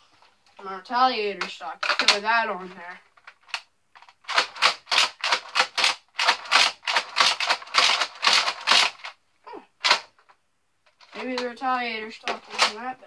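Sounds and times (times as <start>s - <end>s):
plastic toy blaster clicks and rattles: 1.4s - 2.3s, 3.2s - 9.2s, 11.0s - 11.6s, 12.2s - 12.8s.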